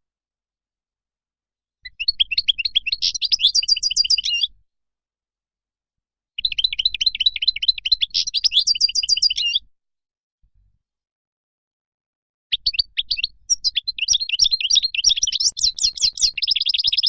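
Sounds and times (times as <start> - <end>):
goldfinch singing: 1.9 - 4.5, 6.4 - 9.6, 12.5 - 17.0.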